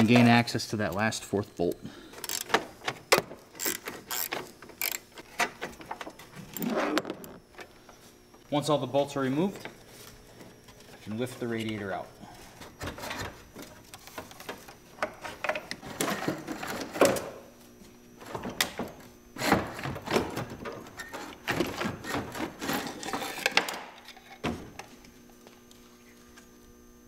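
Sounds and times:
plastic and metal parts clattering: 18.2s - 24.8s.

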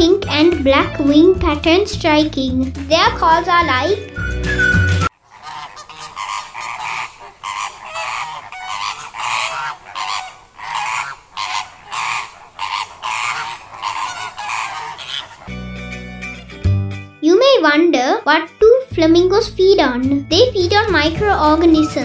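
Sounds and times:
flamingos honking: 4.5s - 16.5s.

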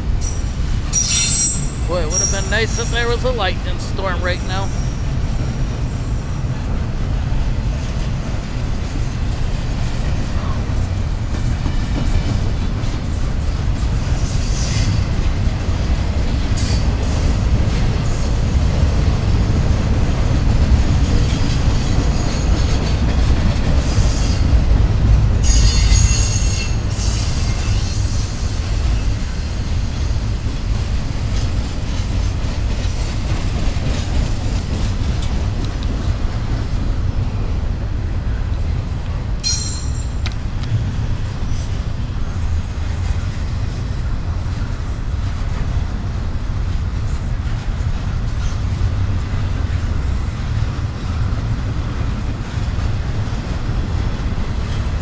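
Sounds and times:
freight train rumbling past: 0.0s - 55.0s
train wheels squealing: 0.2s - 3.2s, 4.6s - 8.1s, 12.0s - 15.2s, 25.4s - 31.1s, 39.4s - 40.2s.

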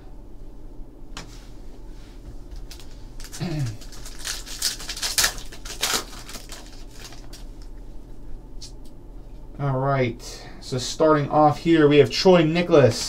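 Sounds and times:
foil wrapper crinkling and tearing: 2.5s - 7.7s.

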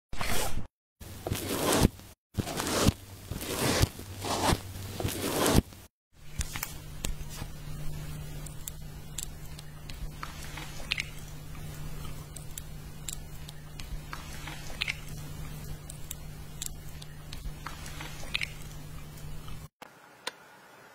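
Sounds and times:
steady low hum: 6.2s - 19.7s.

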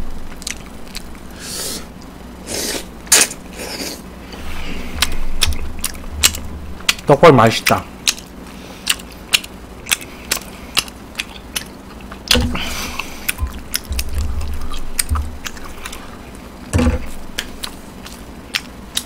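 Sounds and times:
person chewing food: 0.3s - 19.0s
loud knocks: 13.4s - 15.4s.

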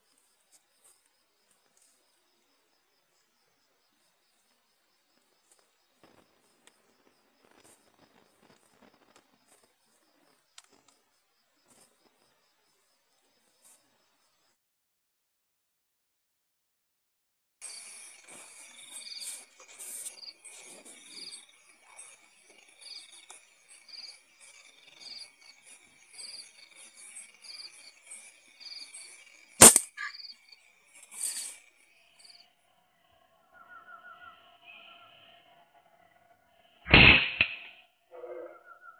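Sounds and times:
night insects chirring: 0.0s - 14.5s, 17.6s - 36.9s
air rifle firing: 29.6s - 29.9s, 36.9s - 37.7s
short burst of noise: 36.9s - 37.7s.

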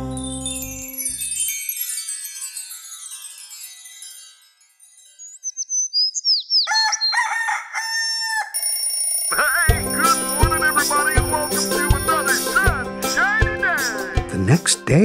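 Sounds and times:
gliding bird whistles: 5.2s - 7.2s
rooster crowing: 6.6s - 8.7s
upbeat music with drum beat: 9.7s - 15.0s.

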